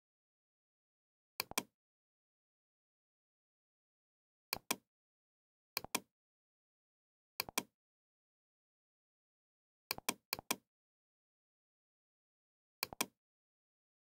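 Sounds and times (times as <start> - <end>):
computer mouse clicks: 1.4 - 1.7, 4.5 - 4.8, 5.8 - 6.1, 7.4 - 7.7, 9.9 - 10.6, 12.8 - 13.2.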